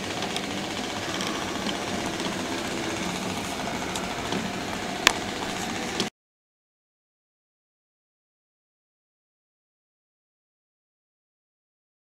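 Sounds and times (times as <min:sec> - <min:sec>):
model train wheels rattling: 0:00.0 - 0:06.1.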